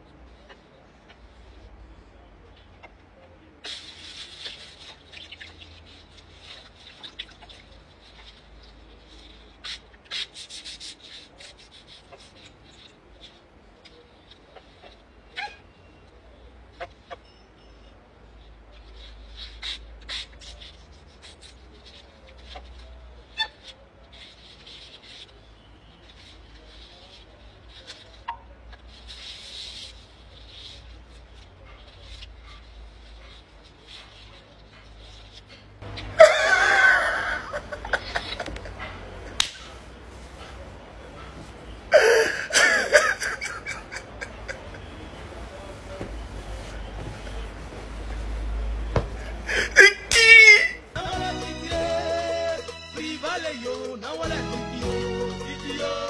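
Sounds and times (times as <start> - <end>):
paper towel rustling: 36.8 - 51.0
hands rubbing raw chicken: 42.4 - 49.0.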